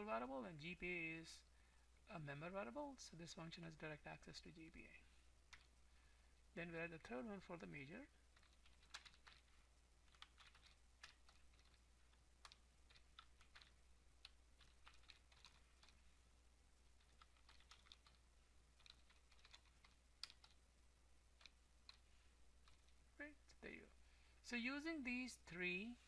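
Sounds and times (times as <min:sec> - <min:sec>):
typing on computer keyboard: 0:08.4 - 0:09.5, 0:10.1 - 0:11.8, 0:12.4 - 0:16.0, 0:17.0 - 0:18.2, 0:18.8 - 0:20.6, 0:22.6 - 0:23.0.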